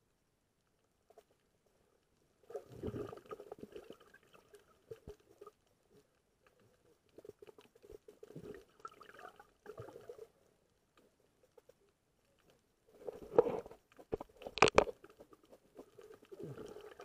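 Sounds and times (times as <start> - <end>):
light bubbling: 2.4 - 5.6, 7.2 - 10.4, 12.9 - 17.0
muffled underwater clicking and knocking: 13.2 - 15.4.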